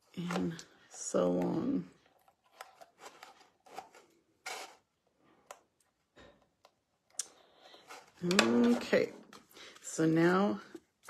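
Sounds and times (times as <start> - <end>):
card and tape rustling: 2.1 - 4.9
papery scrape: 2.5 - 4.9.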